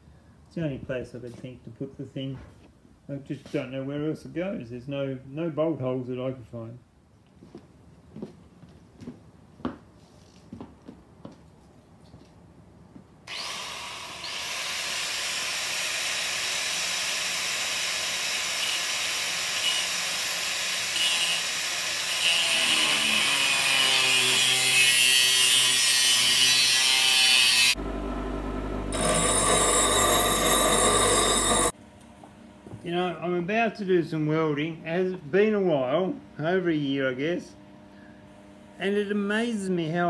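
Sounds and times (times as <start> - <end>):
angle grinder cutting steel: 13.3 - 27.8, 28.9 - 31.7
bench grinder humming: 13.3 - 31.7.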